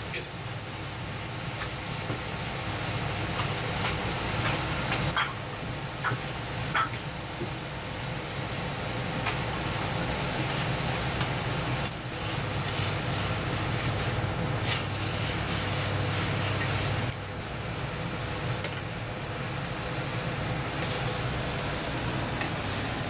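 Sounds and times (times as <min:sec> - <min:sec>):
gas burner rumbling: 0:00.0 - 0:23.0
utensils clinking against pot: 0:05.1 - 0:05.4.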